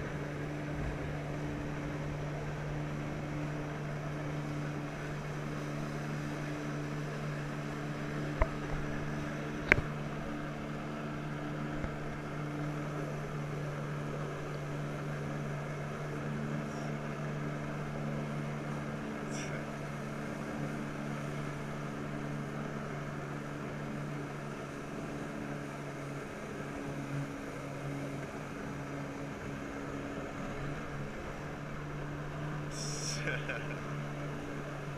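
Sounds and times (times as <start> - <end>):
jet ski engine running: 0.0 - 34.9
hiss of churning water: 32.7 - 33.7.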